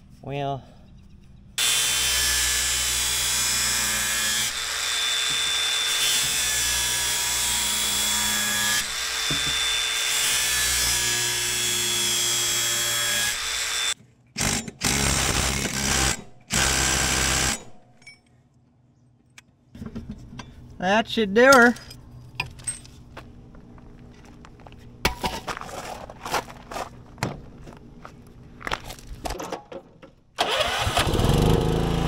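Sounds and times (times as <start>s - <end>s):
angle grinder grinding steel: 1.6s - 14.0s.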